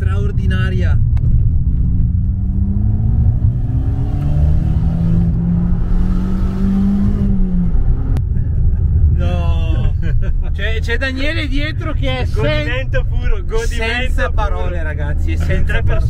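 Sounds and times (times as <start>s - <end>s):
car engine accelerating: 0.0s - 9.2s.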